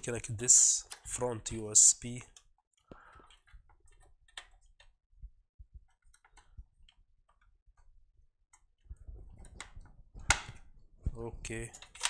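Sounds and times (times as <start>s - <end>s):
cable handling clicks: 0.5s - 5.0s, 8.5s - 10.7s, 11.6s - 12.0s.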